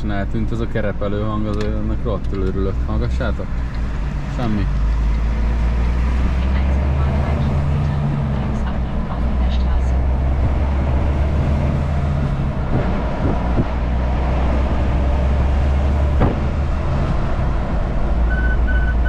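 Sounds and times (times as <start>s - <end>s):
road noise: 0.0s - 19.0s
truck engine drone: 0.0s - 19.0s
short electronic beeps: 18.3s - 19.0s.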